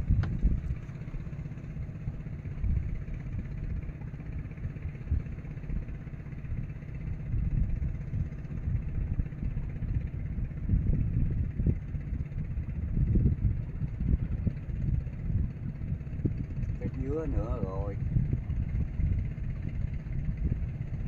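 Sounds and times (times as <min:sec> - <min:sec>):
boat engine rumbling: 0:00.0 - 0:21.0.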